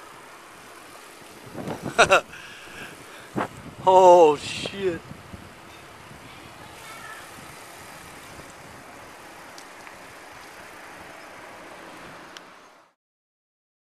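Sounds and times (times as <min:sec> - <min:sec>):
tyres rolling on asphalt: 0:00.0 - 0:12.9
air rushing past: 0:01.3 - 0:12.3
faint ticks: 0:09.5 - 0:10.6.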